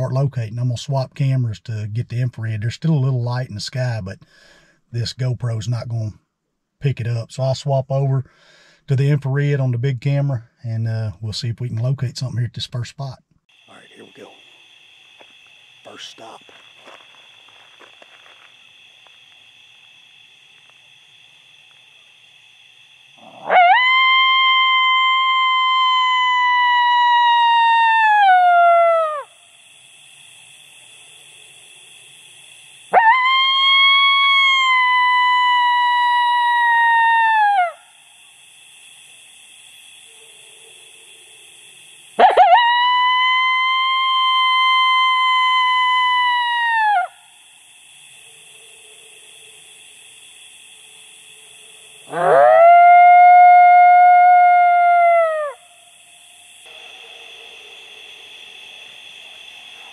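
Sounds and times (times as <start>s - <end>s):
coyote howl call: 23.2s - 29.4s, 32.9s - 38.0s, 42.2s - 47.3s, 52.0s - 55.8s.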